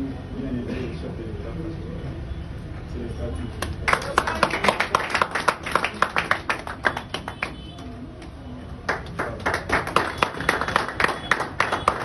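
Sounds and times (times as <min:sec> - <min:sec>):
audience clapping: 0:03.6 - 0:12.0.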